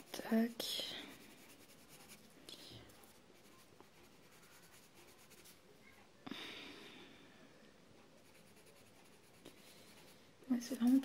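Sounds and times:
coloured pencil scratching on paper: 0.0s - 5.6s, 8.2s - 11.0s.

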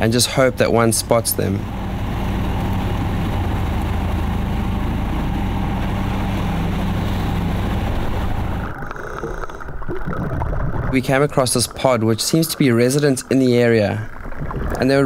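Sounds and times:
motorboat engine running: 0.0s - 9.7s
muffled underwater sound: 0.0s - 15.0s
water rushing past hull: 0.0s - 15.0s.

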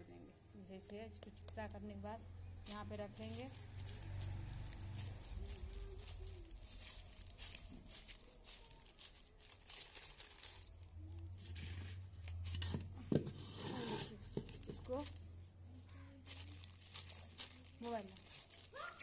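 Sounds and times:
hands kneading gritty clay: 2.7s - 10.1s.

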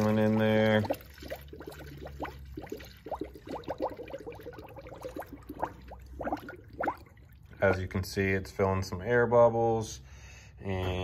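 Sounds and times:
coolant glugging into funnel: 0.0s - 8.1s.

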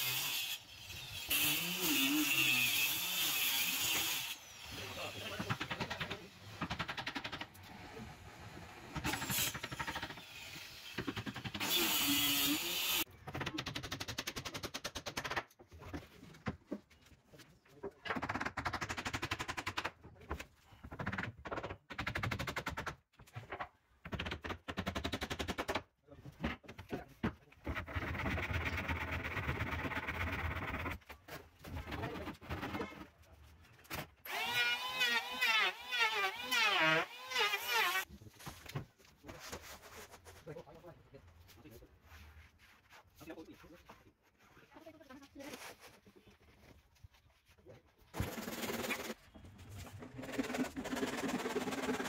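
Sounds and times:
circular saw cutting plywood: 11.6s - 13.0s, 34.3s - 38.1s.

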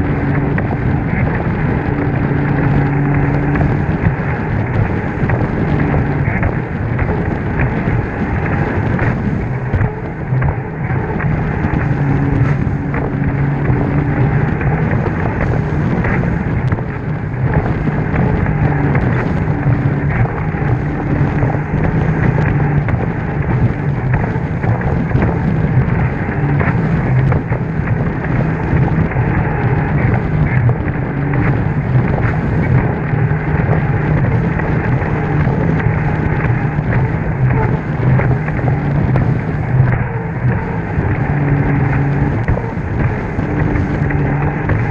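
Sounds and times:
hull knocking on waves: 0.0s - 44.9s
jet ski engine running: 0.0s - 44.9s
rushing water: 0.0s - 44.9s
wind on microphone: 0.0s - 44.9s.

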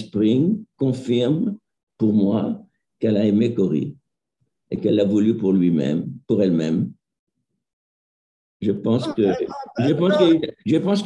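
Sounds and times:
speech: 0.0s - 4.0s, 4.7s - 7.0s, 8.6s - 11.0s.

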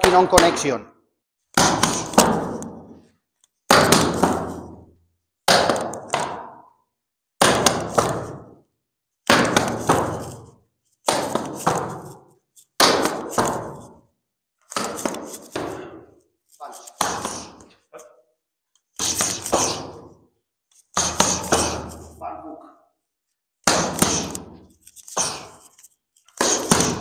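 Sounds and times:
strikes slapping focus pads: 1.5s - 6.7s, 9.3s - 17.7s, 18.8s - 20.2s, 20.8s - 22.2s, 23.6s - 27.0s.

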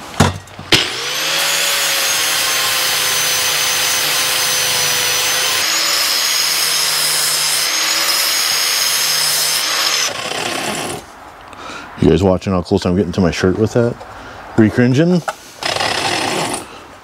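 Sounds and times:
electric grinder whining: 0.8s - 11.1s, 15.6s - 16.7s.

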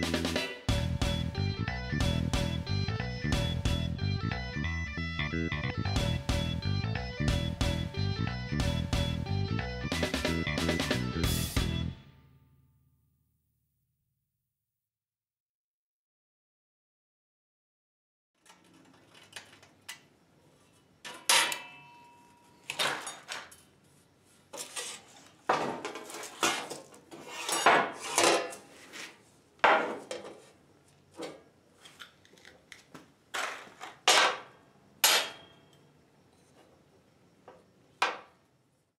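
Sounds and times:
metal knocks and clinks: 21.0s - 23.6s
tools scraping on workbench: 24.5s - 30.6s.

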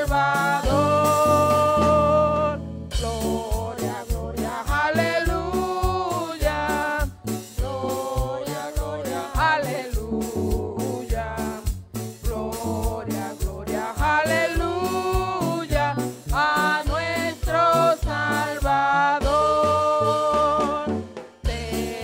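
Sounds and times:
instrumental accompaniment with beat: 0.0s - 22.0s
people singing worship song: 0.0s - 22.0s.

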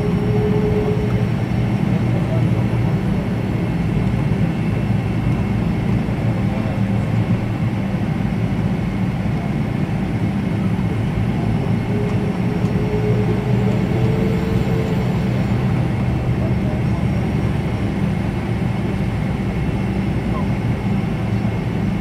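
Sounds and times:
faint rising tone: 0.0s - 1.7s, 11.4s - 16.2s
high whine: 0.0s - 6.8s, 9.7s - 18.3s
jet engines rumbling: 0.0s - 22.0s.

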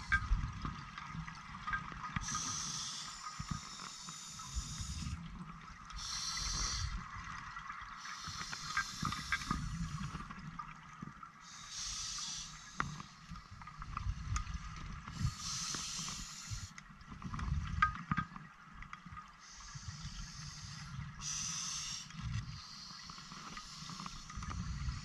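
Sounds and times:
hissing regulator inhalations: 2.2s - 5.2s, 5.9s - 7.0s, 8.0s - 10.2s, 11.5s - 13.4s, 15.1s - 16.8s, 19.4s - 25.0s.

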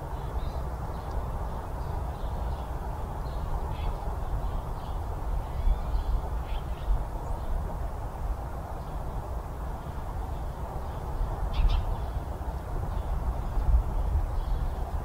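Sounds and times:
faint bird calls: 2.2s - 7.5s, 9.8s - 12.3s.

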